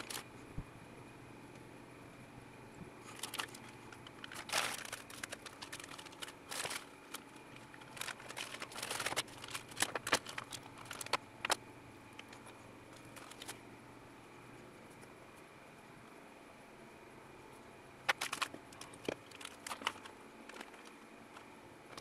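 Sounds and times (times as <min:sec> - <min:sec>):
plastic bags rustling: 0:00.0 - 0:00.3, 0:03.0 - 0:11.6, 0:12.2 - 0:13.6, 0:18.0 - 0:22.0.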